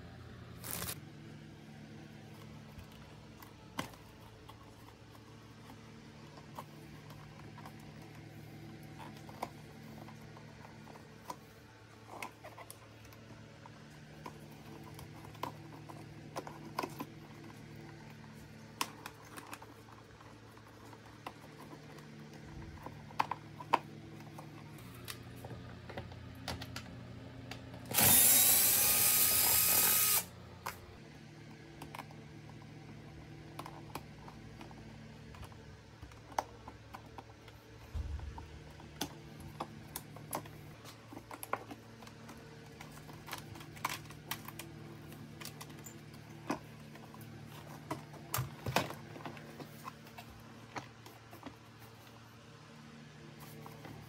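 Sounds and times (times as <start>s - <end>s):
small electric power tool: 0.6s - 1.0s, 27.8s - 30.4s.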